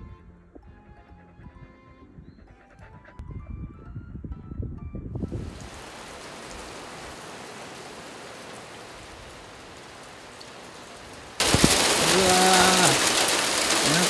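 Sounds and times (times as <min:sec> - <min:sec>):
steady rain falling: 0:05.3 - 0:14.0.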